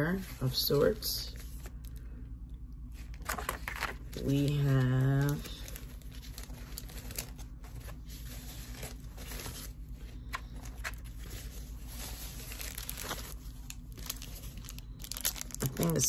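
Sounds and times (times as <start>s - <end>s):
packaging rustling and crinkling: 3.0s - 16.0s
sharp packaging crackles: 3.2s - 16.0s.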